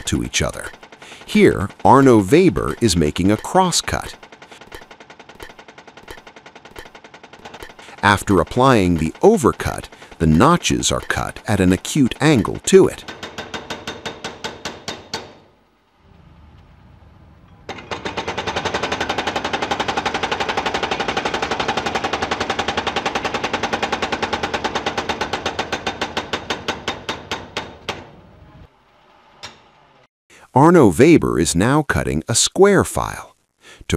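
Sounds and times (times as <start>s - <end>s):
machine chisel striking steel: 0.0s - 15.6s, 17.5s - 28.2s.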